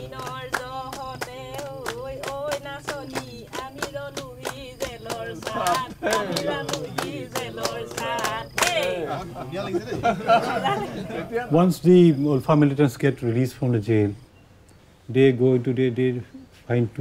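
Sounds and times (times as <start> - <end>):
people clapping a steady beat: 0.0 - 9.3
group singing unaccompanied: 0.0 - 11.4.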